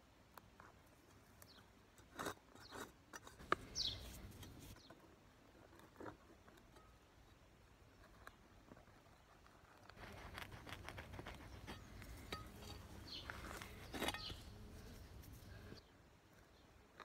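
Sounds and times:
trowel digging in stony soil: 0:09.7 - 0:15.5
trowel scuff: 0:11.6 - 0:14.6.

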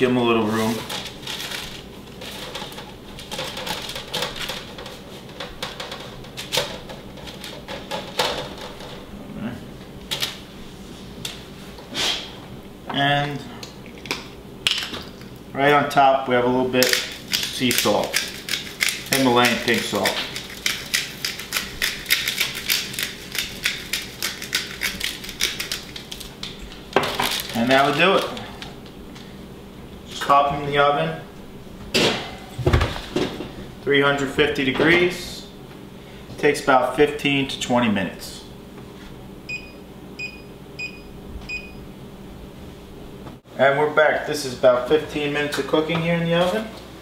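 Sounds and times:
leaves and paper crinkling: 0:00.4 - 0:02.6, 0:25.9 - 0:28.6.

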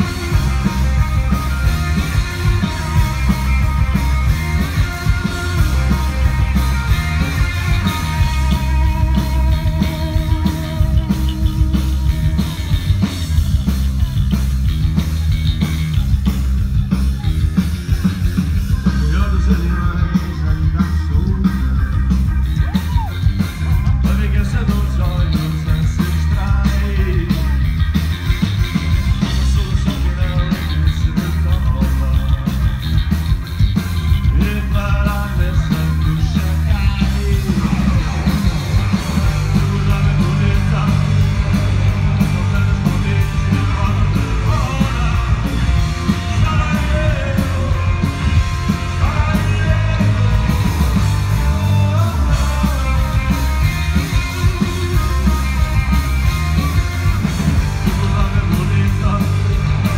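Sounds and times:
rock band playing live: 0:00.0 - 0:59.9.

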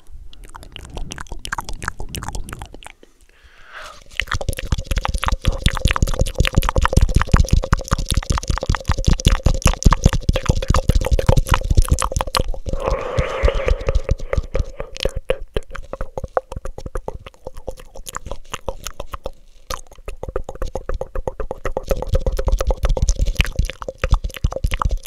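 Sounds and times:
wet tongue and lip clicks: 0:00.0 - 0:25.0
breathy rush: 0:12.7 - 0:15.2.

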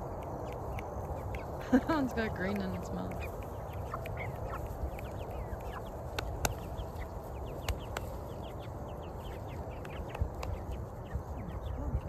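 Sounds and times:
sharp clicks: 0:00.0 - 0:08.2
chicks peeping: 0:00.0 - 0:12.0.

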